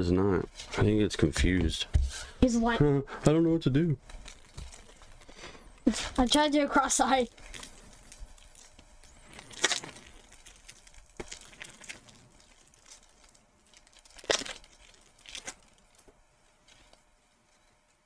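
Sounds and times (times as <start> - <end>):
foil wrapper crinkling and tearing: 3.7 - 18.0.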